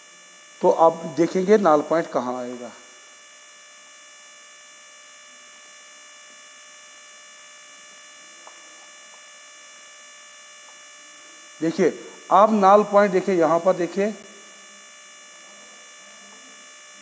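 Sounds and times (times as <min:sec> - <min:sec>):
high-pitched whine: 0:00.0 - 0:05.6, 0:10.6 - 0:17.0
electrical hum: 0:00.0 - 0:17.0.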